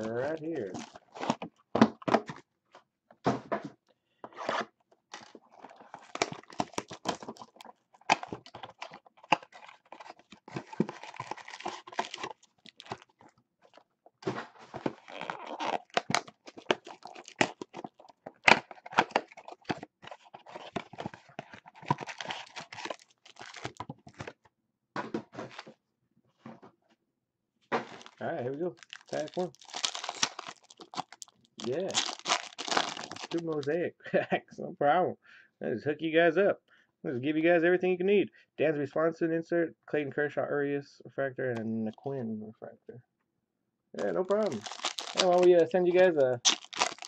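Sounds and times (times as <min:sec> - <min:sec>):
shrink wrap tearing and crinkling: 0:00.0 - 0:01.4, 0:04.5 - 0:13.8, 0:14.8 - 0:24.3, 0:27.8 - 0:33.7, 0:44.0 - 0:47.0.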